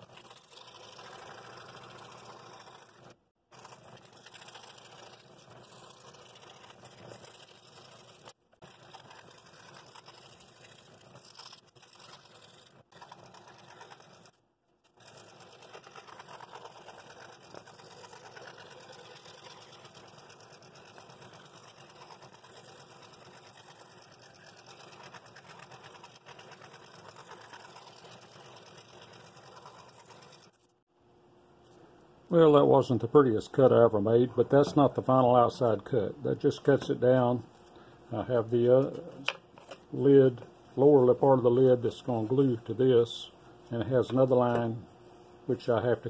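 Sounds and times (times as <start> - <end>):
scroll saw cutting wood: 0.0 - 30.7.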